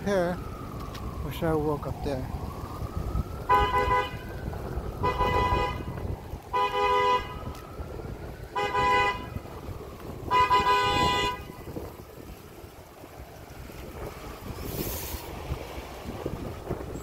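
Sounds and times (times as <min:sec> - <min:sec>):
low traffic rumble: 0:00.0 - 0:17.0
vehicle horn honking: 0:03.5 - 0:04.2, 0:05.0 - 0:05.9, 0:06.5 - 0:07.4, 0:08.6 - 0:09.4, 0:10.3 - 0:11.6.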